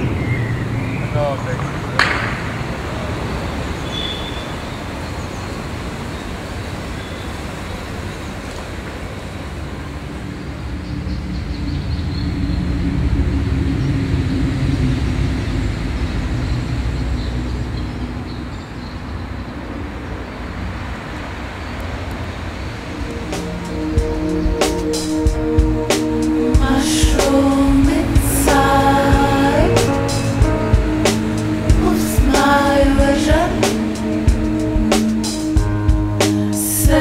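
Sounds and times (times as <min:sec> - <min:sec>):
heavy vehicle passing: 0:00.0 - 0:37.0
traffic rumble: 0:00.0 - 0:37.0.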